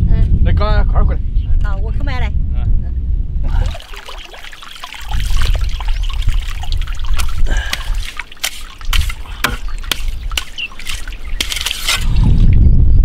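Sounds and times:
water sloshing: 0:03.4 - 0:12.5
spade scraping in wet mud: 0:07.0 - 0:12.4.

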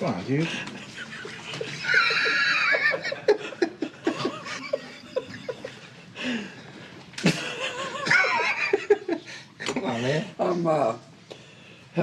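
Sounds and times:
man laughing: 0:00.7 - 0:05.9, 0:07.3 - 0:09.2.

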